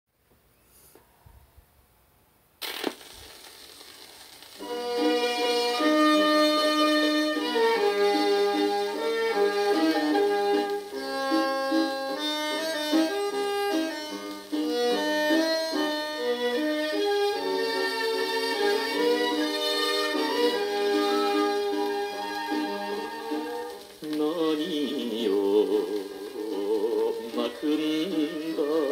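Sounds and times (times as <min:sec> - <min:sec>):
vinyl surface hiss: 0:00.2 - 0:28.9
stylus dropping on record click: 0:02.6 - 0:05.1
instrumental pop song: 0:04.6 - 0:28.9.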